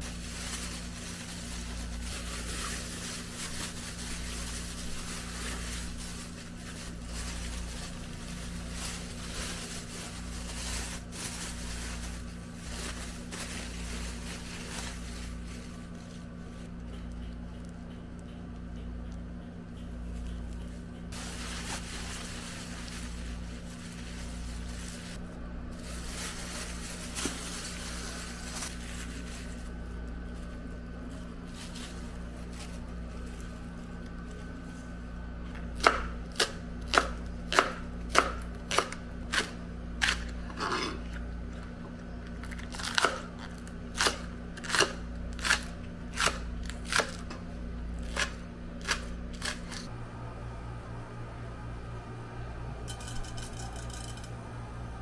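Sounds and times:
plastic packaging crinkling: 0:00.0 - 0:16.7, 0:20.6 - 0:35.0.

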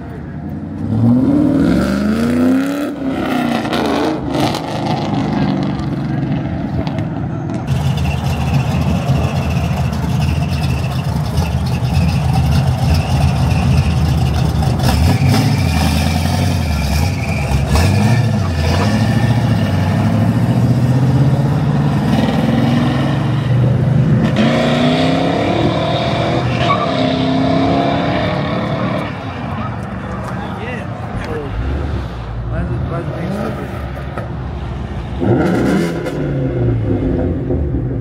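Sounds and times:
car engine revving: 0:07.6 - 0:29.6, 0:35.1 - 0:38.0.

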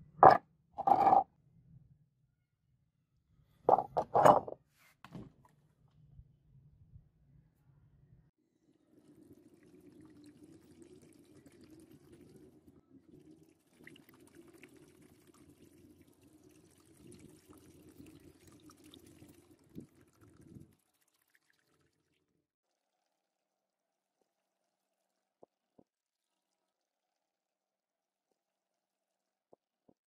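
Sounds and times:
liquid pouring into plastic trough: 0:09.0 - 0:22.2.

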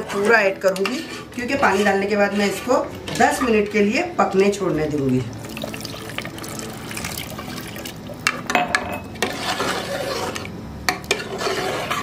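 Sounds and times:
liquid sloshing: 0:05.0 - 0:08.4.

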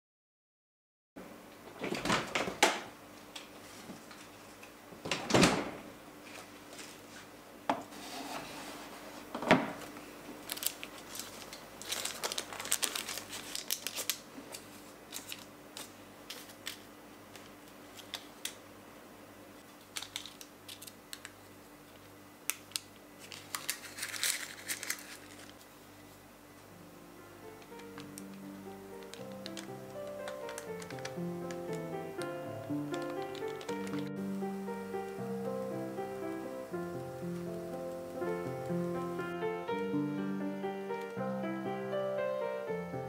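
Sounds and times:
parchment paper crinkling: 0:09.9 - 0:18.6, 0:19.6 - 0:26.2, 0:27.5 - 0:36.6.

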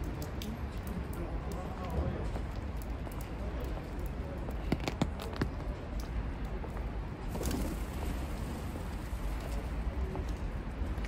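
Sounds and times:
street traffic rumble: 0:00.0 - 0:11.0
pigeon wing flaps: 0:07.3 - 0:08.5.

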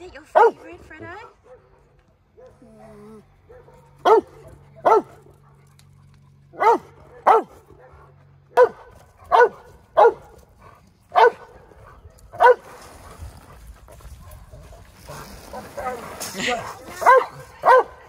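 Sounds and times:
dog barking: 0:00.3 - 0:00.7, 0:02.4 - 0:05.6, 0:06.6 - 0:10.4, 0:11.1 - 0:12.7, 0:17.0 - 0:18.0.

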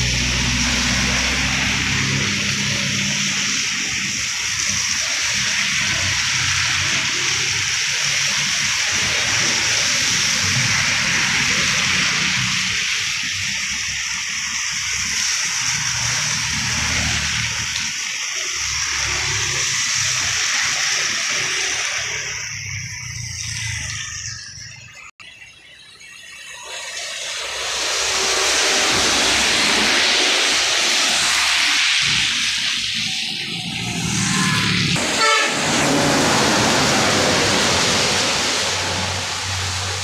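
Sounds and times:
vehicle engines humming: 0:00.0 - 0:08.0, 0:27.3 - 0:40.0
tyres hissing on wet road: 0:00.0 - 0:24.7, 0:26.7 - 0:40.0.

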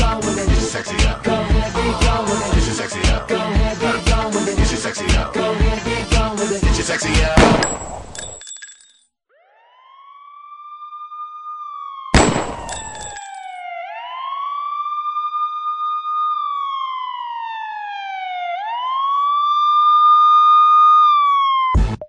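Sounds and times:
emergency vehicle siren wailing: 0:09.3 - 0:21.9.

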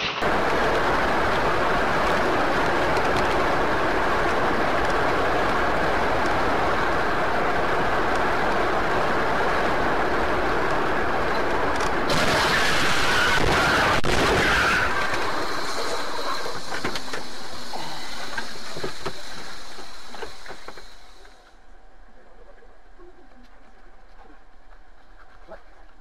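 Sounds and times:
road and wind noise inside car: 0:00.2 - 0:12.1.

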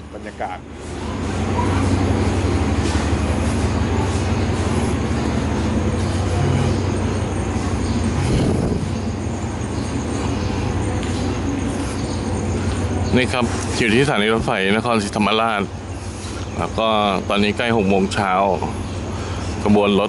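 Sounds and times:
train diesel engine idling: 0:00.0 - 0:20.0.

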